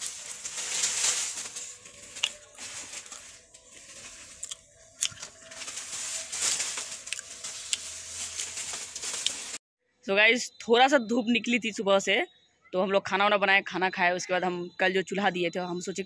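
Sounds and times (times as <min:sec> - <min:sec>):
crunching and chewing fried snack: 0:00.0 - 0:06.0, 0:06.8 - 0:09.4.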